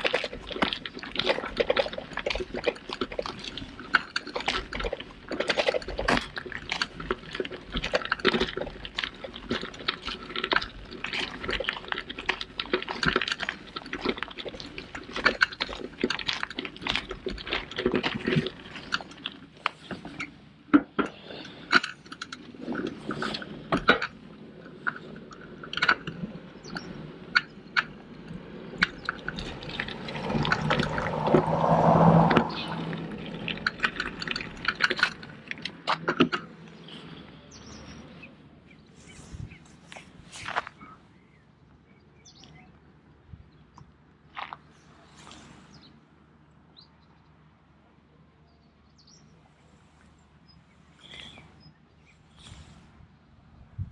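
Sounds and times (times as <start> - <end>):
tyres crunching on gravel: 0.0 - 41.3, 43.9 - 46.0
bike rattling: 0.0 - 41.4.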